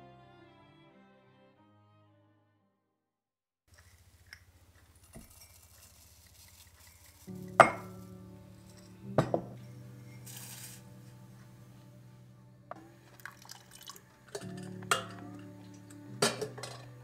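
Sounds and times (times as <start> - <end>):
glass and ceramic clinking: 7.4 - 8.0, 8.7 - 9.6, 12.7 - 15.4, 16.2 - 16.9.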